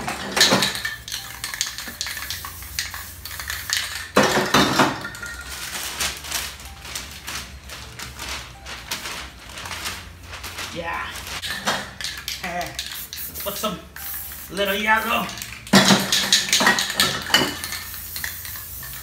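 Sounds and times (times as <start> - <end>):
spray cans clinking and rattling: 0.0 - 6.7, 10.5 - 19.0
spray can hissing: 0.6 - 4.2, 12.0 - 19.0
paper rustling: 5.4 - 11.4.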